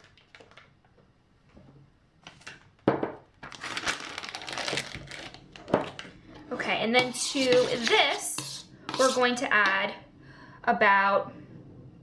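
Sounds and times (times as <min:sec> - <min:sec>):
plastic bag crinkling: 0:03.4 - 0:06.1.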